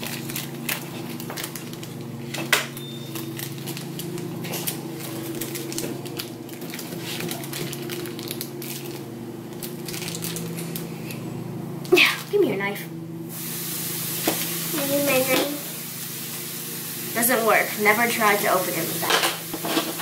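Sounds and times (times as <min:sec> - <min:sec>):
plastic packet crinkling: 0:00.0 - 0:11.2.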